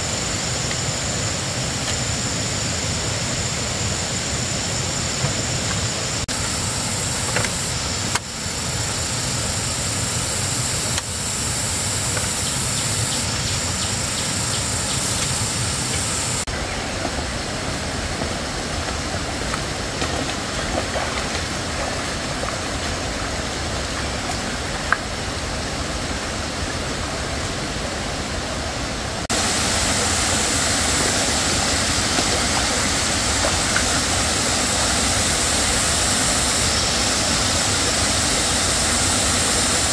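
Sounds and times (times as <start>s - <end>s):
thin high whine: 0.0s - 20.3s, 28.6s - 39.9s
stream water running over rocks: 10.9s - 39.9s.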